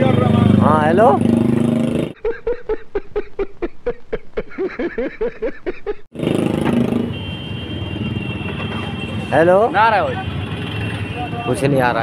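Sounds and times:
street background noise: 0.0 - 12.0
man laughing heartily: 2.2 - 6.1.

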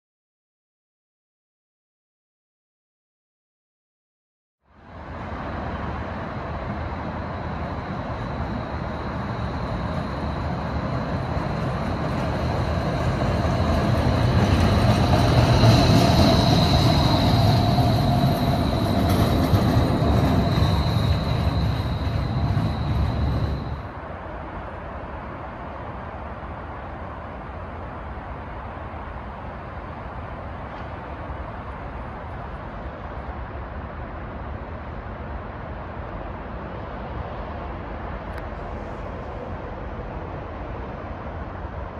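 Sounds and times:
streetcar running on rails: 4.7 - 41.9
high-pitched wheel squeal: 14.2 - 23.9.

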